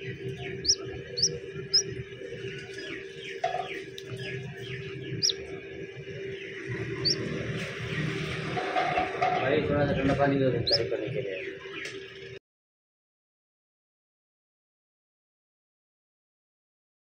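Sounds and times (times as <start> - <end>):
steady low hum: 0.0 - 11.6
chicks peeping: 0.0 - 11.9.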